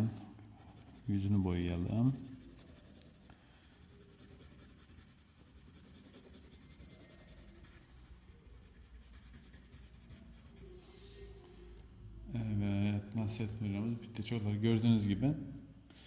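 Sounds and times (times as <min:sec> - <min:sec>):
pencil scratching on paper: 0:00.6 - 0:11.3.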